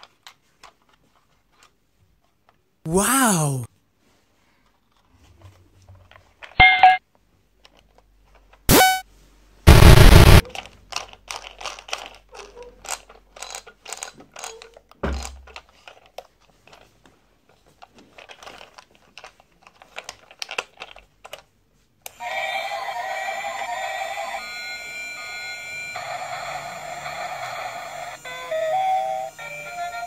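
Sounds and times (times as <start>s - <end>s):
plastic toy clicks and knocks: 10.4s - 16.8s, 17.9s - 21.5s.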